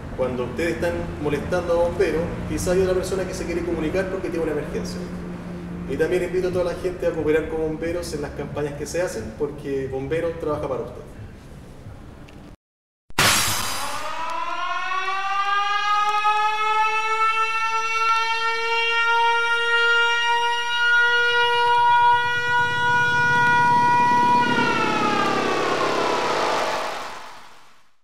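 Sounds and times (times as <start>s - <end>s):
alarm siren wailing: 13.2s - 27.4s.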